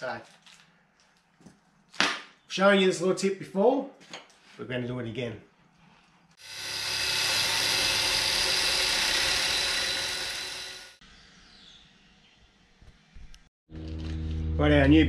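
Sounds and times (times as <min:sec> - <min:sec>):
power tool cutting metal: 0:06.4 - 0:11.0.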